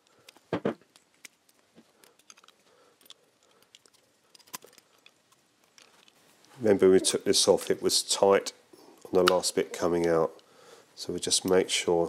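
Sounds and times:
small metal clicks and taps: 0.2 - 6.2.

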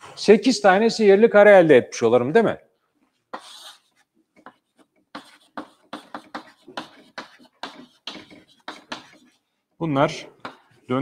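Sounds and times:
chalk scratching on chalkboard: 3.3 - 9.5.

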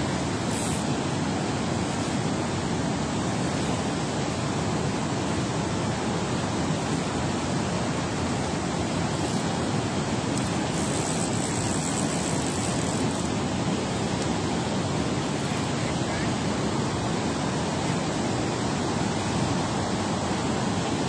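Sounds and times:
water rushing through spillway: 0.0 - 21.0.

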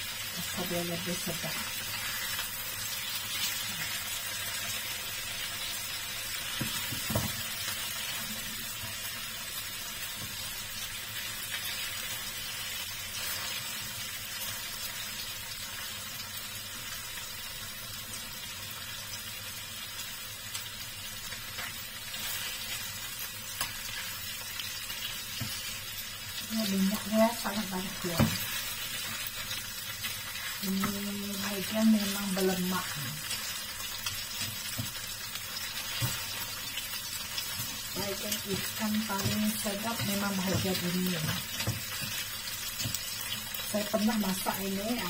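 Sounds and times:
fish sizzling in oil: 0.0 - 45.0
spatula turning food in pan: 0.0 - 45.0.

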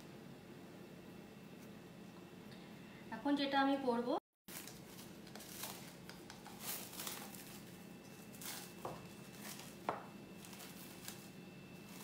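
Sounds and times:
rustling of food and utensils: 4.5 - 12.0.

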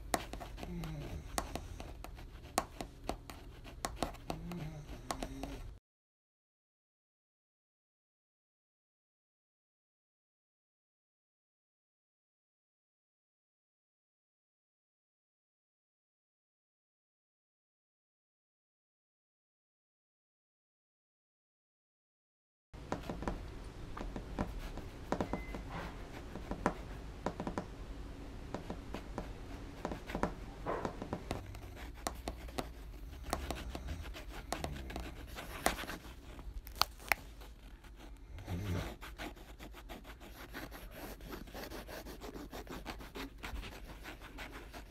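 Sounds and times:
pen scratching on paper: 0.0 - 5.8, 24.0 - 27.6, 28.5 - 44.9.

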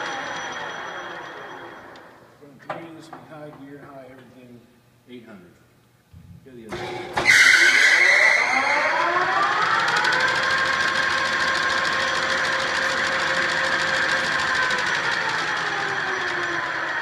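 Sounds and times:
lathe spindle whine: 0.0 - 2.4, 6.8 - 17.0.

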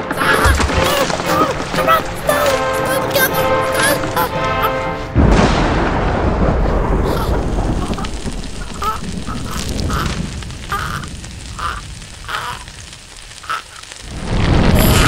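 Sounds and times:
low rumble of a blast: 5.1 - 13.4
nasal quack-like squeaks: 8.8 - 12.7, 13.4 - 13.9.

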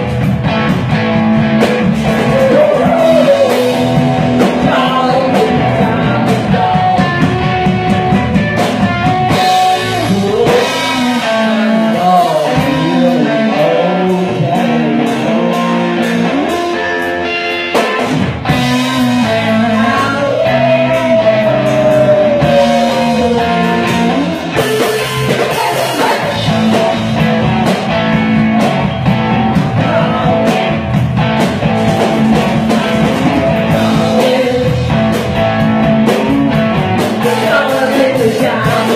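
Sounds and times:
drum kit: 0.0 - 38.9
electric guitars: 0.0 - 38.9
lead singer singing: 2.0 - 7.7, 9.3 - 16.6, 18.5 - 27.4, 29.4 - 31.0, 32.0 - 38.9.

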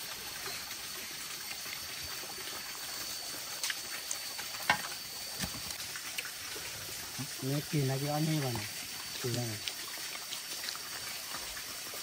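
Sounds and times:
steady trickling: 0.0 - 12.0
thin high tone: 0.2 - 5.4.

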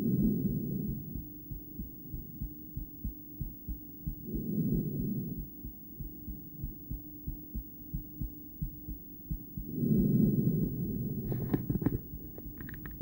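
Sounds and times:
heartbeat through stethoscope: 0.0 - 13.0
breath rushing over stethoscope: 10.6 - 12.8
sharp crackling clicks: 11.3 - 13.0.

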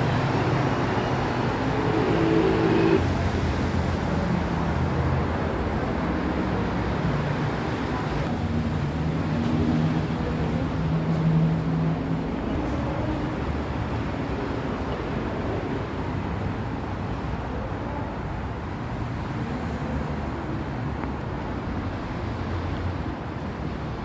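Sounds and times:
road traffic rushing: 0.0 - 17.2
low hum: 1.0 - 3.1.

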